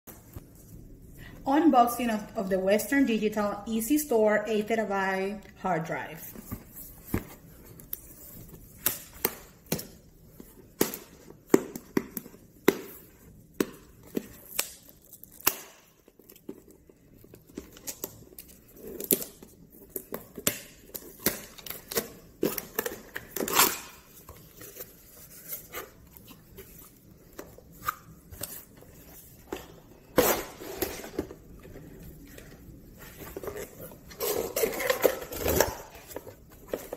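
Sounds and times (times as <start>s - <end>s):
cardboard tearing and crinkling: 17.6s - 27.0s.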